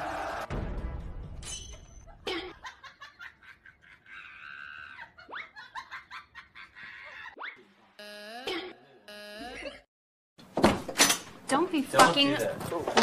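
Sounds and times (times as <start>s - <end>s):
people laughing: 2.2s - 7.4s.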